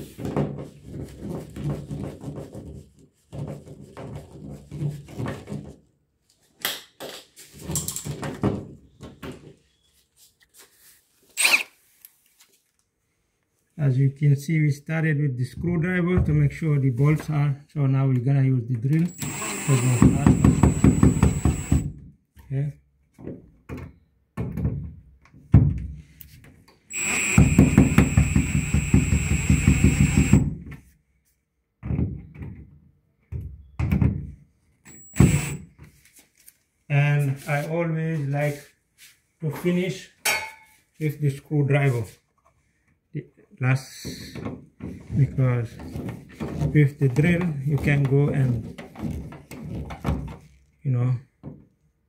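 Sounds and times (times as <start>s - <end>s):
screw creaking and squeaking: 11.4s - 11.7s, 19.1s - 21.8s, 26.9s - 30.4s, 34.9s - 35.6s
impact driver whirring and rattling: 19.1s - 22.0s, 26.9s - 30.6s, 34.9s - 35.6s.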